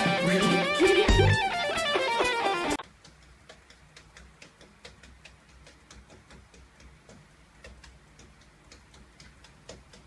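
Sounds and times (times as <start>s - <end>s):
faint irregular clicks: 2.7s - 10.0s.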